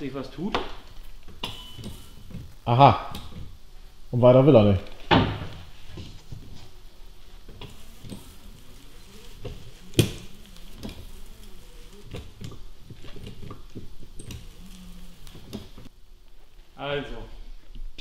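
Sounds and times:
wiper blade rubbing over glass: 5.6s - 15.9s.

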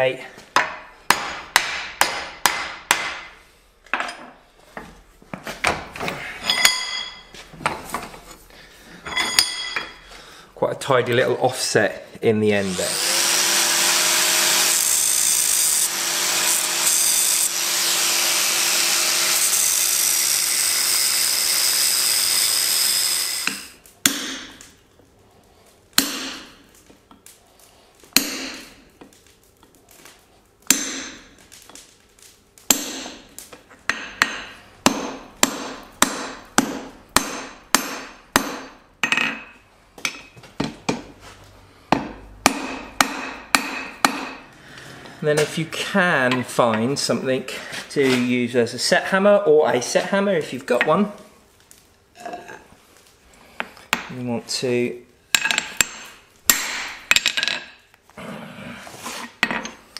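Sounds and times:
hammer striking steel on anvil: 0.6s - 3.3s, 26.0s - 26.6s, 28.2s - 28.7s, 30.7s - 31.3s, 32.7s - 33.2s, 33.9s - 40.4s, 41.9s - 44.4s, 55.3s - 57.3s.

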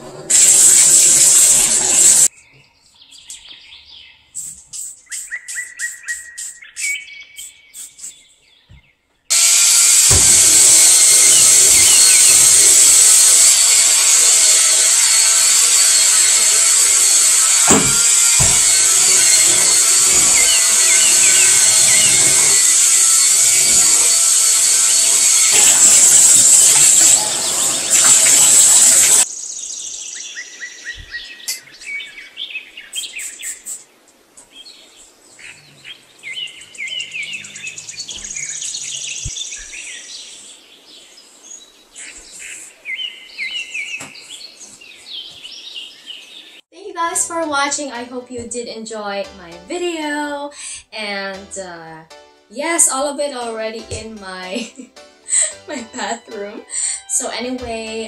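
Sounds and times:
electric scrubber brush whirring: 0.0s - 2.3s, 9.3s - 29.3s
birds chirping: 0.7s - 46.7s.

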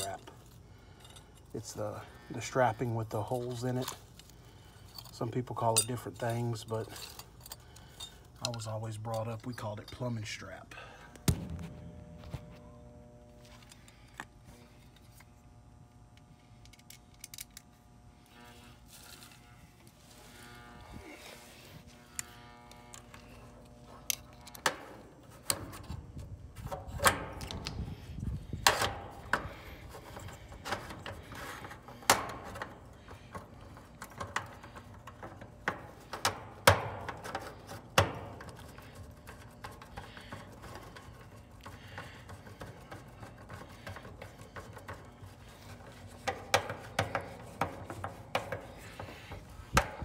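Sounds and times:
faint steady hum: 0.0s - 50.0s
sharp clicks and knocks: 28.6s - 50.0s.

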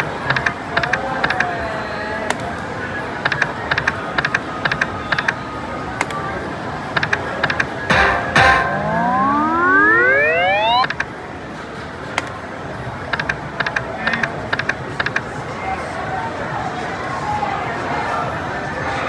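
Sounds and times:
background machine sound: 6.4s - 12.4s.

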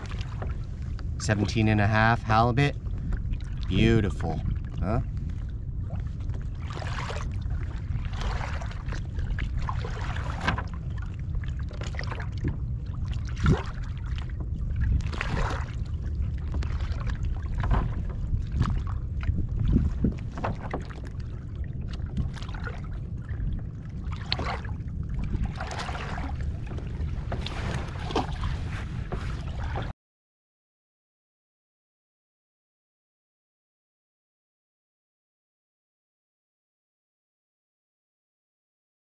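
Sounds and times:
water lapping against hull: 0.0s - 29.9s
wind rumbling on microphone: 0.0s - 29.9s.

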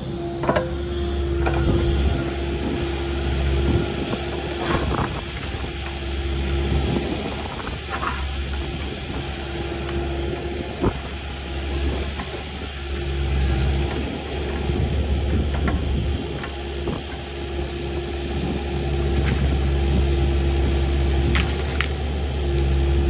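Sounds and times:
steady hydraulic tone: 0.0s - 5.6s
excavator diesel engine: 0.0s - 23.0s.

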